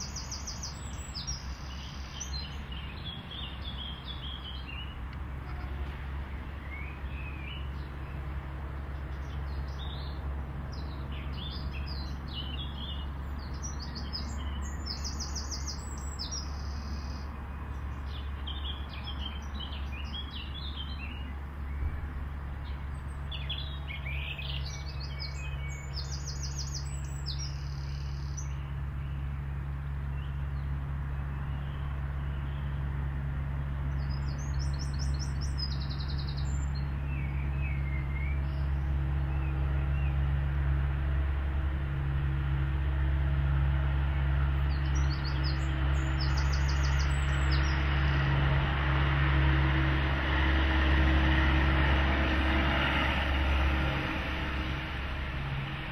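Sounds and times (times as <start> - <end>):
songbirds chirping and singing: 0.0 - 8.3, 8.9 - 40.4, 44.4 - 48.4
steady low rumble: 0.0 - 55.9.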